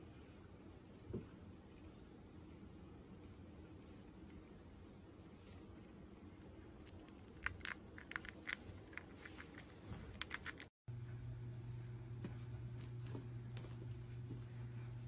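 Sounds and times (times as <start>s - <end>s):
steady low hum: 0.0s - 15.0s
hamster nibbling crunches: 6.1s - 10.7s.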